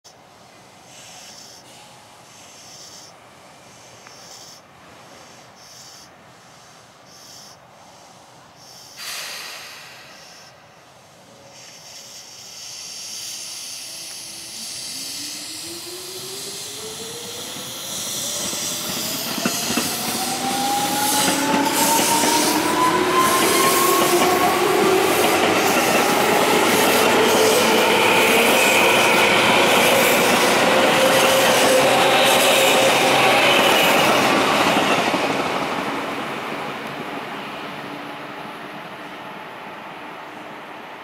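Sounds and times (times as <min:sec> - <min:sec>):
train air hisses: 0:00.8 - 0:36.5
train motor whine: 0:13.3 - 0:35.1.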